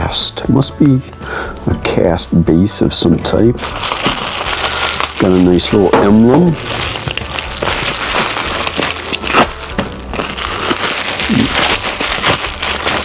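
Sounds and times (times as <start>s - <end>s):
plastic bag crinkling: 3.6s - 13.0s.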